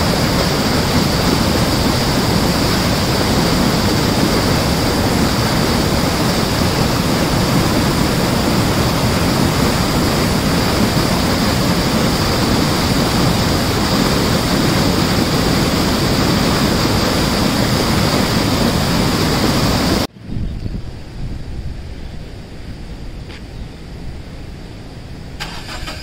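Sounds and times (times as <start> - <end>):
heavy flowing water rushing: 0.0 - 20.1
low rumble: 0.0 - 25.4.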